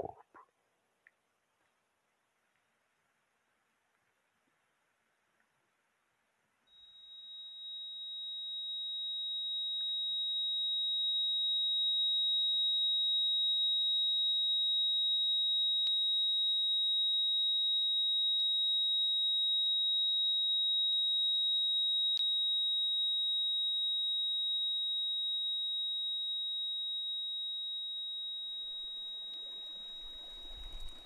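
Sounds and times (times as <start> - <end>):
high-pitched sine tone: 6.7 - 31.0
faint clicks: 28.6 - 31.0.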